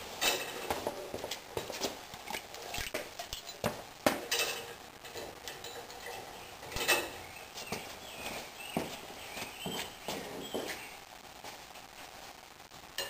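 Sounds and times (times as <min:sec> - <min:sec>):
metal chain clinking and rattling: 0:02.7 - 0:07.2.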